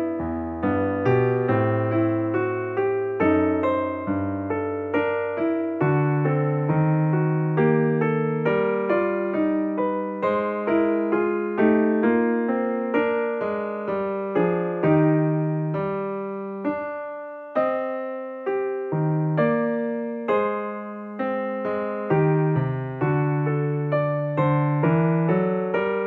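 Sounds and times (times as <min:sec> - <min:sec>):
gentle keyboard melody: 0:00.0 - 0:26.0.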